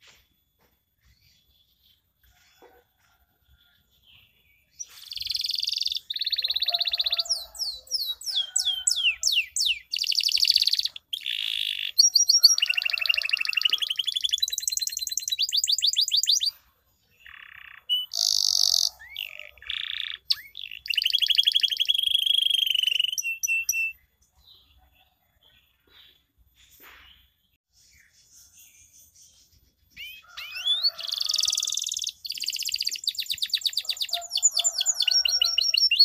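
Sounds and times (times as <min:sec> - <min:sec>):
canary singing: 0:04.7 - 0:25.2, 0:29.8 - 0:36.0.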